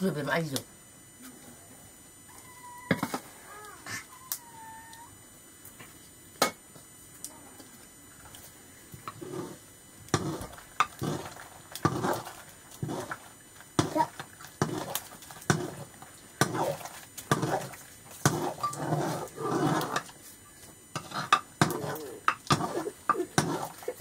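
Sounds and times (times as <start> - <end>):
kitten meowing: 2.3 - 5.1.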